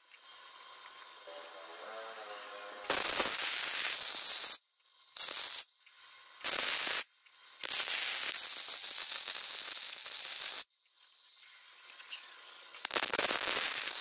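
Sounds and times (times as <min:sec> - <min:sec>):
arc welding crackling: 0:00.0 - 0:14.0.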